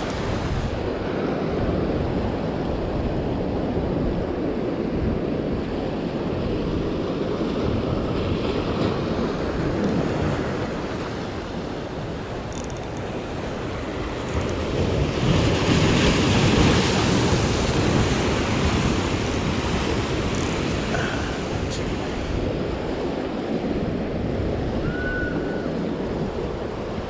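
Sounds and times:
wave crashing: 0:14.9 - 0:23.4.

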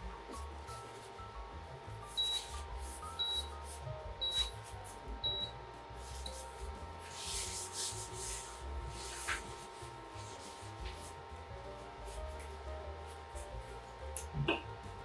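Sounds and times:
faint background music with beeps: 0:00.0 - 0:15.0
paper towel scrubbing a pan: 0:06.0 - 0:11.2.

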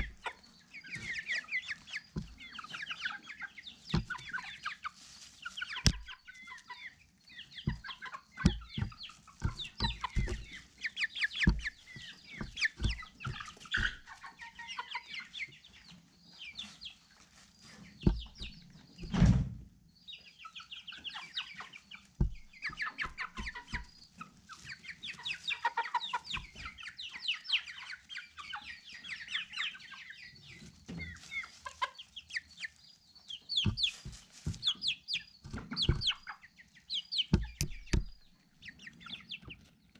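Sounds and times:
chickens clucking: 0:00.0 - 0:39.9
dull thumps: 0:05.8 - 0:06.1, 0:07.6 - 0:10.6, 0:11.3 - 0:14.1, 0:18.0 - 0:19.6, 0:22.2 - 0:23.9, 0:33.6 - 0:34.8, 0:35.4 - 0:36.3, 0:37.3 - 0:38.3.

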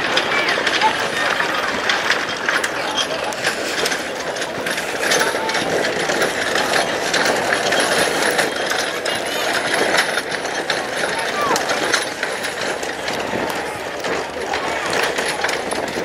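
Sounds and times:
spectators chattering: 0:00.0 - 0:16.0.

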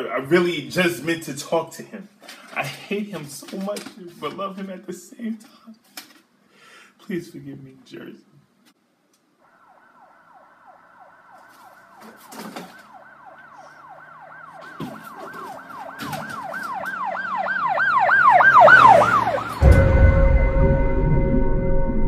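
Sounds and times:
siren yelping: 0:09.4 - 0:20.4
music: 0:19.6 - 0:22.0.

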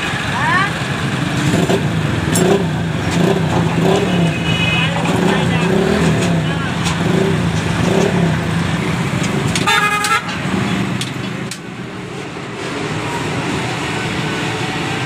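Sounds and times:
street traffic engines: 0:00.0 - 0:15.0
vehicle horn honking: 0:03.9 - 0:05.2, 0:09.6 - 0:10.4.

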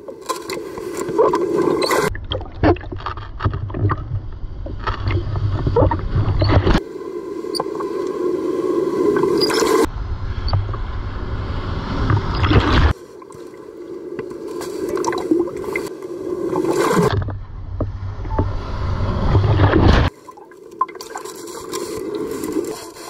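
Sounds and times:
water gurgling and splashing: 0:00.0 - 0:09.9, 0:12.0 - 0:17.4, 0:18.3 - 0:23.0
deep underwater rumble: 0:01.3 - 0:20.1
waves breaking: 0:11.5 - 0:17.3, 0:18.7 - 0:23.0.

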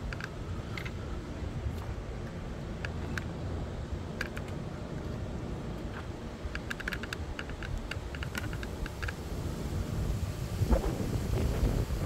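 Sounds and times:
wind buffeting microphone: 0:05.8 - 0:12.0.

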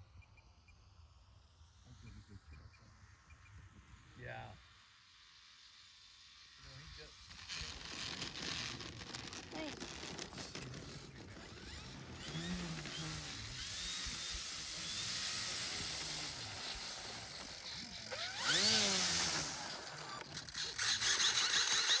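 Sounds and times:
model plane electric motor: 0:05.0 - 0:22.0.

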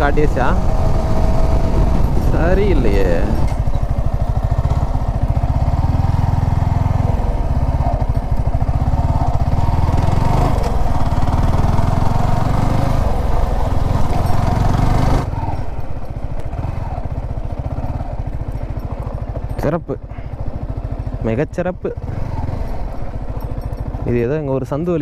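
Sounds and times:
motorcycle engine running: 0:00.0 - 0:25.0.

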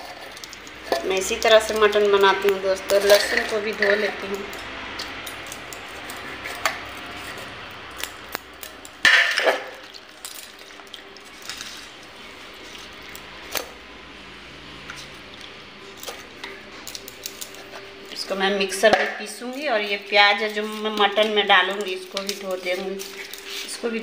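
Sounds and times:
steel dishes clinking and clattering: 0:00.0 - 0:07.4.

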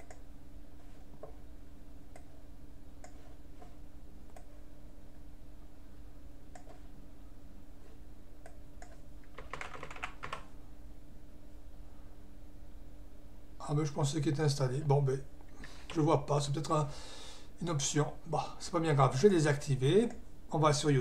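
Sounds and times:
steady low hum: 0:00.0 - 0:21.0
computer keyboard typing: 0:08.8 - 0:10.5.

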